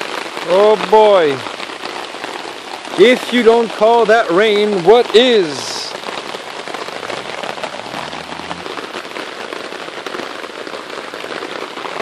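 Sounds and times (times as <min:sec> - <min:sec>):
heavy rain on a tarp: 0:00.0 - 0:12.0.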